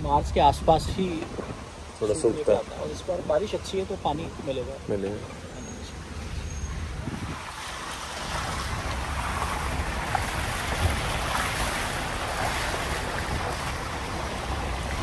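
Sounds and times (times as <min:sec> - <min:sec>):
jeep engine and tyres rumbling: 0:00.0 - 0:15.0
wind rushing over microphone: 0:06.2 - 0:12.2.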